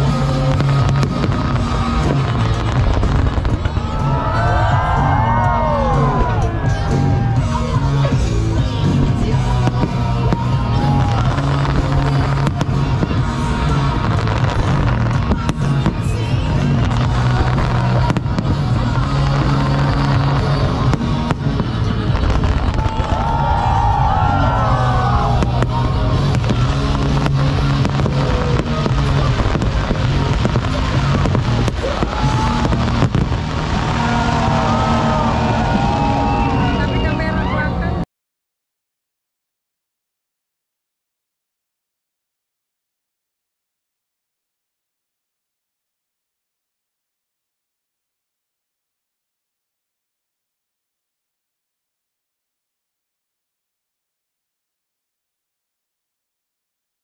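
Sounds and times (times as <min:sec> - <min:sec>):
fireworks bangs: 0:00.0 - 0:37.1
loud music with bass line: 0:00.0 - 0:37.9.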